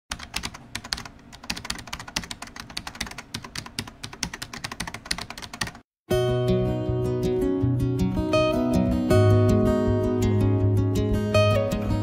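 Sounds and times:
typing on a keyboard: 0:00.1 - 0:05.8.

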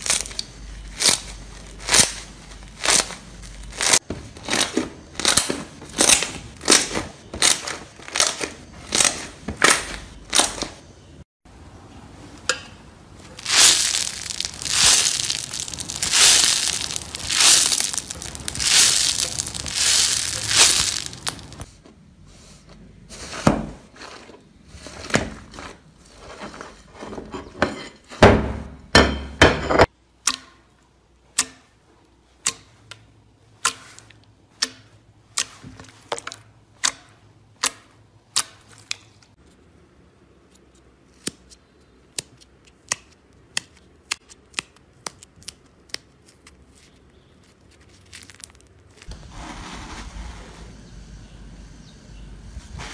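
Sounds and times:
slime crackling: 0:00.0 - 0:10.5, 0:13.3 - 0:21.7, 0:47.7 - 0:49.1
slime squelching: 0:13.3 - 0:21.7.

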